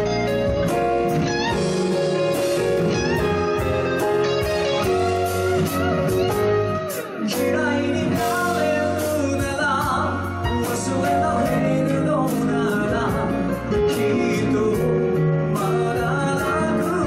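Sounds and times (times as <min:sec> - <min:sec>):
electric guitar lead with bent notes: 0:00.0 - 0:17.0
slow pop ballad by live band: 0:00.0 - 0:17.0
man singing: 0:06.7 - 0:17.0.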